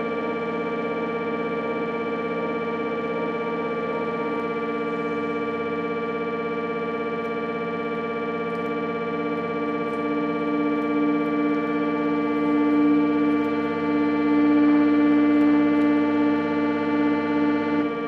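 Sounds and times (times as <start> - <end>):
sustained musical drone chord: 9.8 - 18.0.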